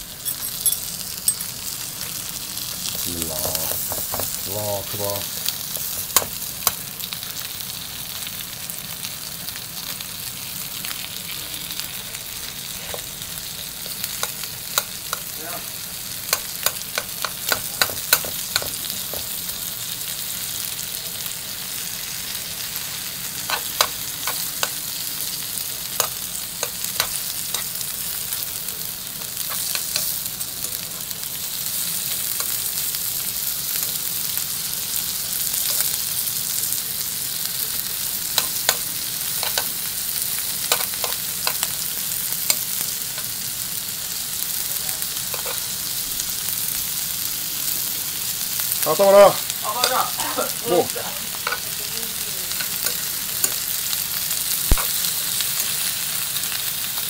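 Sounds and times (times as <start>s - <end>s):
food sizzling in a frying pan: 0.0s - 57.0s.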